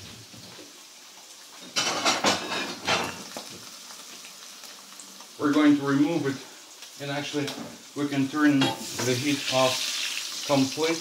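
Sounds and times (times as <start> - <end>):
meat sizzling in frying pan: 0.0 - 11.0.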